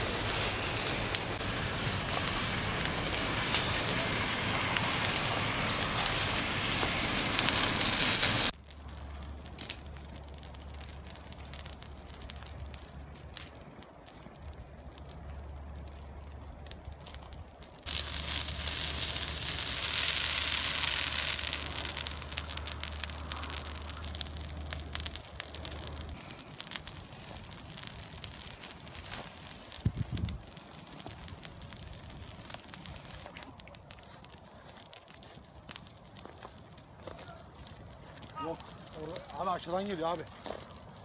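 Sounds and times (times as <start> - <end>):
loud rushing hiss: 0.0 - 8.5
fire crackling and popping: 0.0 - 41.0.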